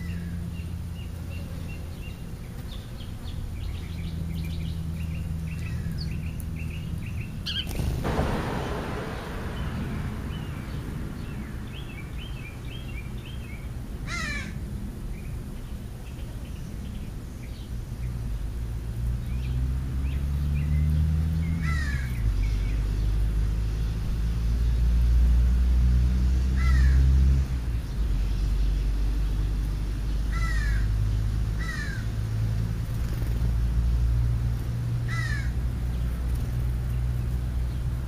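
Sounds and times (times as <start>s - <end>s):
steady low rumble: 3.5s - 17.0s
crow cawing: 14.1s - 14.6s, 21.6s - 22.1s, 30.3s - 30.9s, 31.6s - 32.1s, 35.1s - 35.6s.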